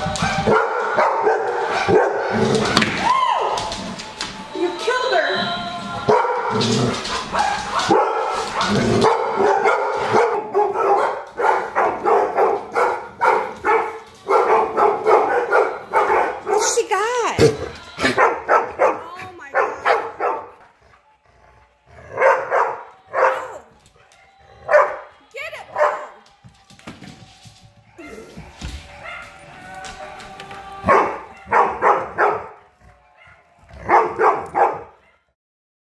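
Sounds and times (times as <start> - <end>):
dog barking: 0.2 - 2.6, 6.1 - 16.8, 17.4 - 20.7, 22.1 - 25.1, 25.7 - 26.2, 28.0 - 29.4, 30.9 - 35.4.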